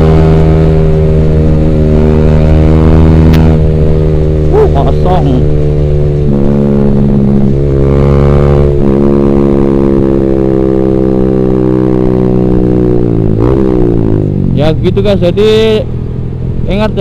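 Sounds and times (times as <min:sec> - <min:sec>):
motorcycle exhaust: 0:00.0 - 0:14.9.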